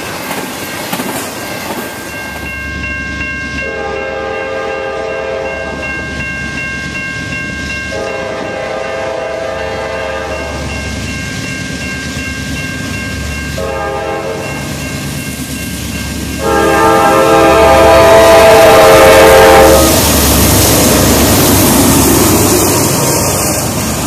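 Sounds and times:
train rumble: 0.0s - 24.0s
electronic crossing bell ringing: 1.4s - 9.0s, 9.6s - 17.5s
train air horn blasts: 3.6s - 5.5s, 7.9s - 10.5s, 13.6s - 14.5s, 16.4s - 20.2s.

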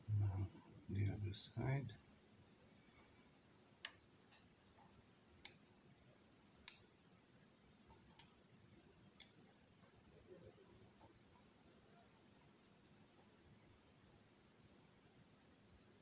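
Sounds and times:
tweezers clicking against lock core: 6.7s - 6.9s.

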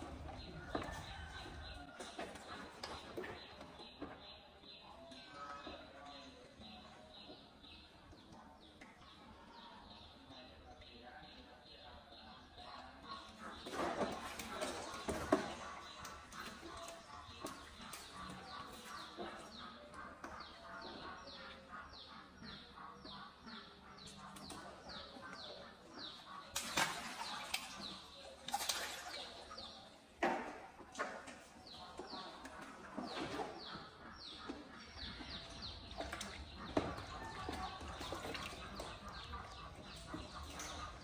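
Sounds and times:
water splashing in pool: 26.4s - 31.6s.

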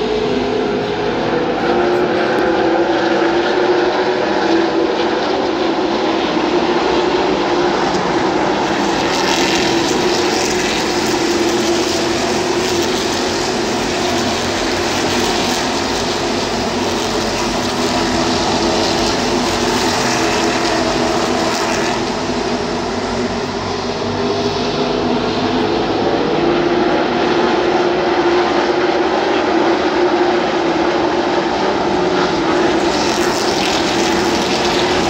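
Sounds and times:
race car engines droning: 0.0s - 35.0s.

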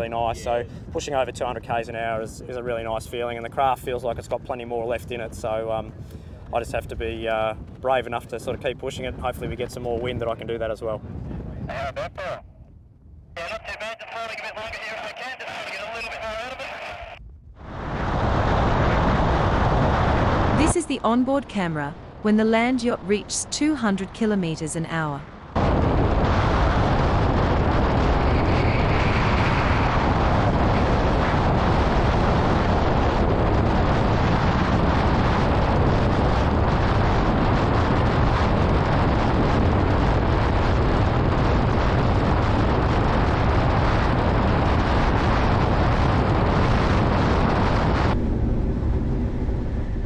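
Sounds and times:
wind buffeting microphone: 0.0s - 50.0s
low rumble: 11.0s - 50.0s.

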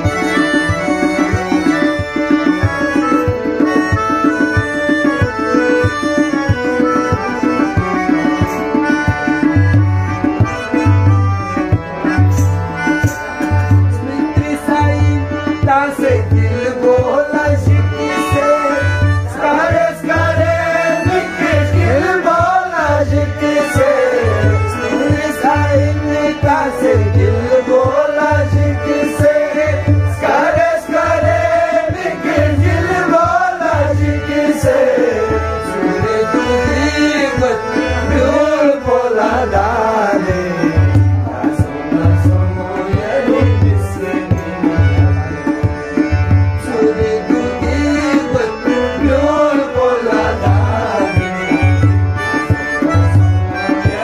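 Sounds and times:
harmonium chords: 0.0s - 54.0s
man singing ornamented melody: 13.2s - 45.6s, 46.5s - 51.9s, 53.4s - 54.0s.

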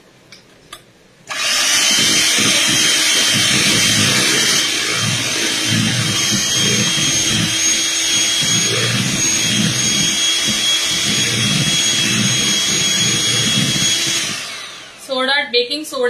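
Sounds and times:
electric hand mixer churning batter: 1.3s - 15.1s.

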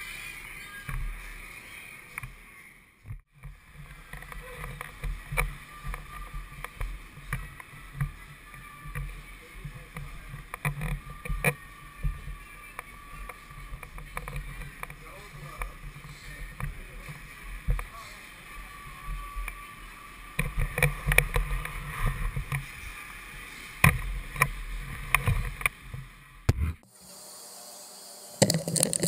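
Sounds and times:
camera handling rumble: 28.4s - 29.0s.

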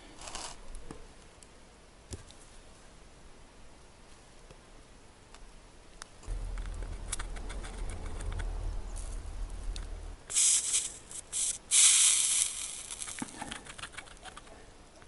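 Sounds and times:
low hum: 6.0s - 11.6s
soldering iron sizzling hiss: 10.3s - 13.3s.

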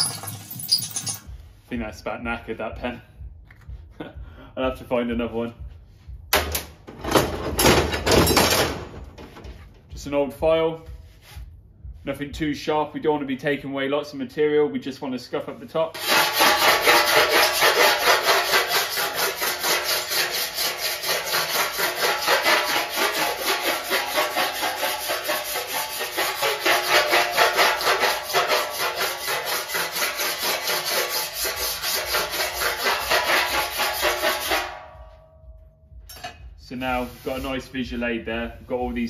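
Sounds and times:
file rasping on steel: 16.0s - 34.7s.

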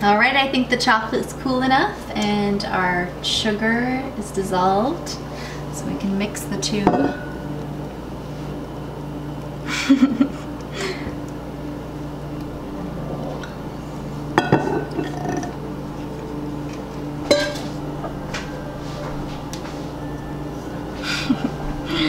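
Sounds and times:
low hum: 0.0s - 22.0s
metal pan clinking on ceramic bowl: 6.9s - 7.3s, 17.3s - 17.6s.

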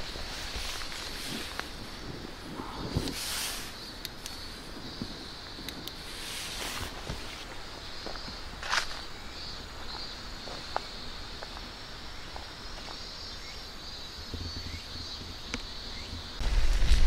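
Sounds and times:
short rustle: 0.0s - 3.9s, 6.0s - 7.5s
high-pitched insect chorus: 0.0s - 17.0s.

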